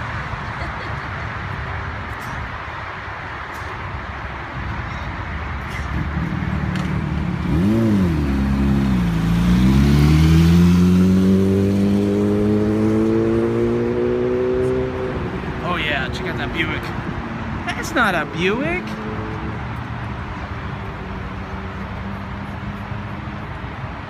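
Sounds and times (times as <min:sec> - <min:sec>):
motorcycle engine revving and accelerating: 0:06.4 - 0:15.3.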